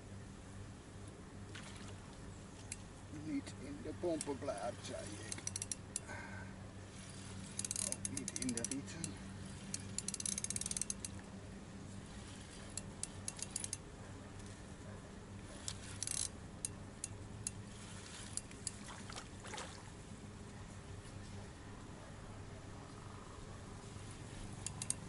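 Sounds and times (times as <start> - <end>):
steady low hum: 0.0 - 25.0
fishing reel clicking: 5.2 - 6.1, 7.5 - 11.2, 12.7 - 13.8, 15.9 - 17.6, 24.6 - 25.0.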